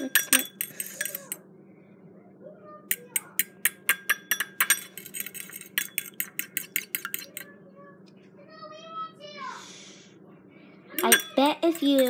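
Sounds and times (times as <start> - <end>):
fork whisking in glass bowl: 0.0 - 1.4, 2.9 - 7.5, 11.0 - 12.0.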